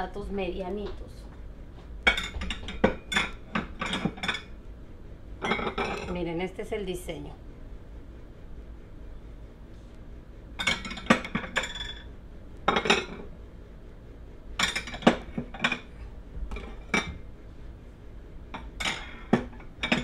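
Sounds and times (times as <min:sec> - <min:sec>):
plates clinking: 0:02.1 - 0:04.5, 0:05.4 - 0:06.1, 0:10.6 - 0:12.1, 0:12.7 - 0:13.3, 0:14.6 - 0:15.9, 0:16.5 - 0:17.2, 0:18.6 - 0:20.0.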